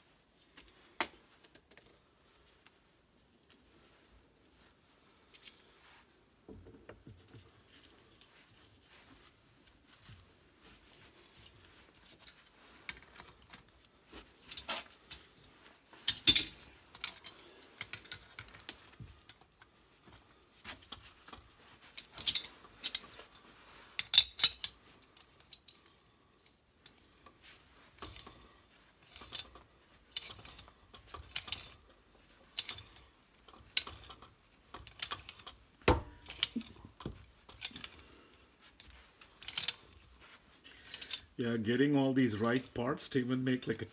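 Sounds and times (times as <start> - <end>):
wrenches clinking on metal fittings: 15.9 - 19.5, 20.1 - 23.3, 24.0 - 25.8, 26.4 - 38.1, 38.8 - 41.4.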